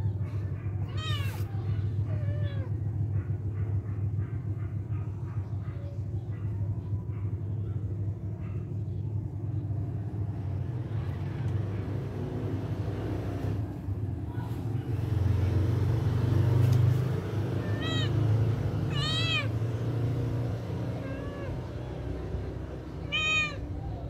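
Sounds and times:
cat meowing: 0:00.9 - 0:02.8, 0:17.5 - 0:19.7, 0:20.8 - 0:22.2, 0:22.9 - 0:24.0.

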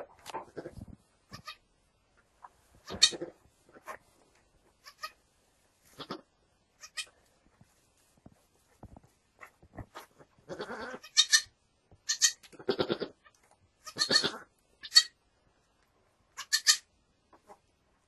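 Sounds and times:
goats bleating: 0:10.5 - 0:11.5, 0:13.8 - 0:15.1.

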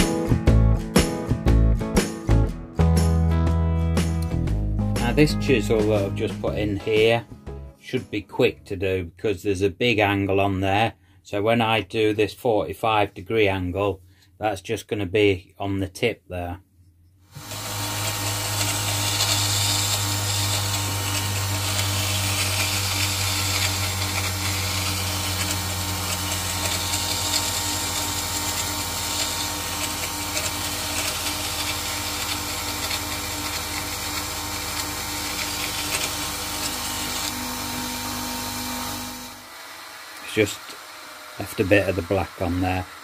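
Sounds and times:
grinder motor hum: 0:17.3 - 0:43.0
chisel grinding on stone wheel: 0:17.4 - 0:39.4.

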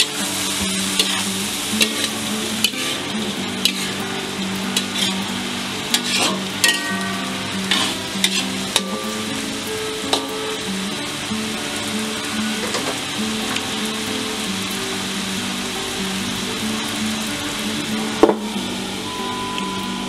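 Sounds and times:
food sizzling: 0:00.0 - 0:20.0
spatula clacking against wok: 0:01.0 - 0:01.2, 0:03.6 - 0:04.0, 0:05.9 - 0:09.2.

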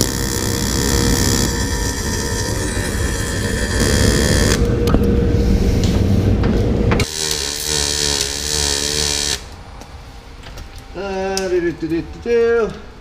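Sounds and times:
welding arc buzzing and hissing: 0:00.0 - 0:04.7, 0:07.0 - 0:09.6
loud steady noise: 0:00.0 - 0:12.5.

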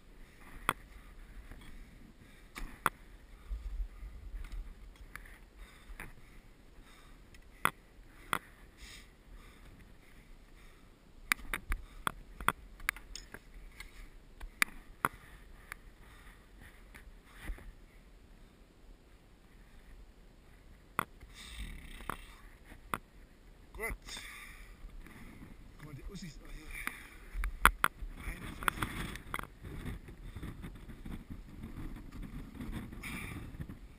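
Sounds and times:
climbing gear clicking on rock: 0:11.3 - 0:15.9, 0:21.1 - 0:23.0, 0:26.8 - 0:33.8
wind buffeting microphone: 0:27.3 - 0:33.9.

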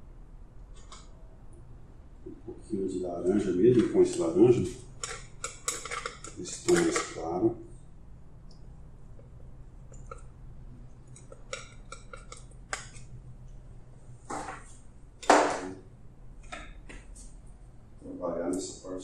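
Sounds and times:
palette knife tapping and scraping: 0:05.0 - 0:07.1, 0:11.0 - 0:13.1.

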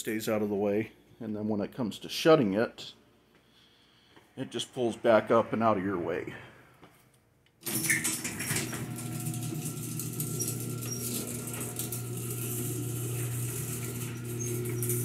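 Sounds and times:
garage door opener humming: 0:07.6 - 0:15.0.

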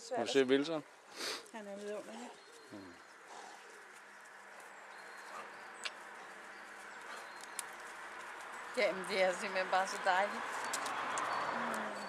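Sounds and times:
faint bird calls: 0:02.0 - 0:07.9.

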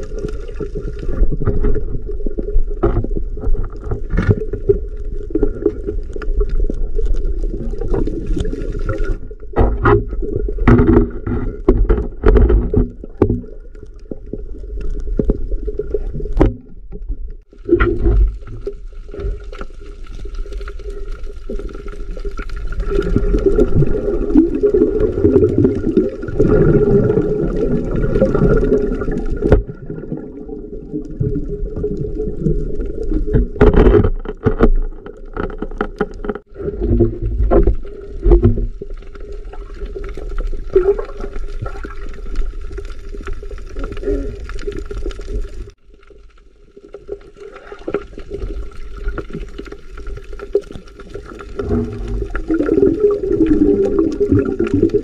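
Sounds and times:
muffled underwater rumble: 0:00.0 - 0:55.0
sharp clicks and knocks: 0:09.6 - 0:13.4.

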